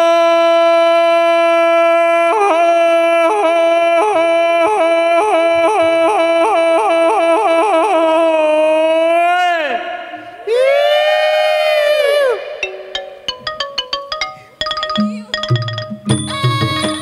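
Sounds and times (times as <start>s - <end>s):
high melody with held note: 12.6s - 17.0s.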